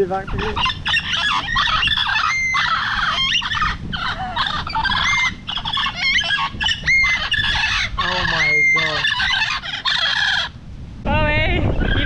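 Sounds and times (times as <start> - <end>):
parrots chattering and squawking: 0.0 - 10.6, 11.7 - 12.0.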